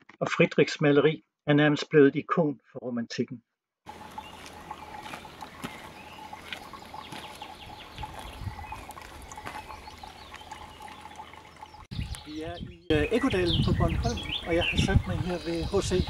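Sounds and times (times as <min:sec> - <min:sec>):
birds chirping: 0:03.9 - 0:16.0
water trickling into basin: 0:03.9 - 0:16.0.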